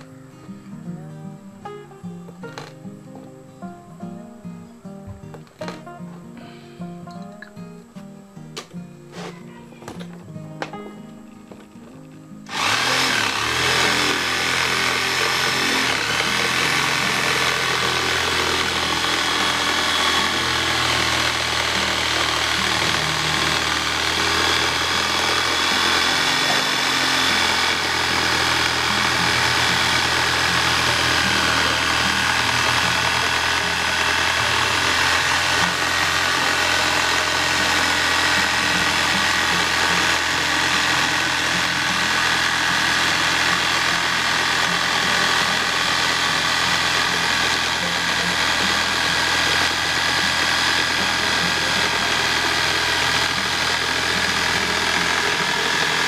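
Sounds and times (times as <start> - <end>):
electric jigsaw whining: 12.5 - 56.0.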